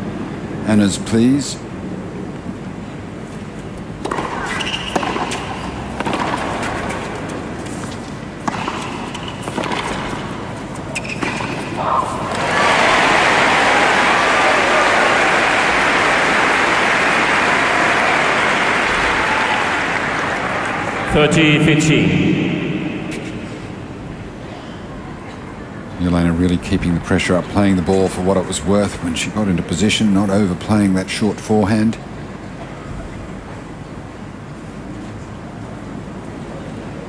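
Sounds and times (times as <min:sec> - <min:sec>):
tennis ball bounces: 0:04.0 - 0:11.8
tennis racquet hits: 0:04.0 - 0:12.4, 0:22.3 - 0:24.0
crowd applause: 0:12.4 - 0:21.2.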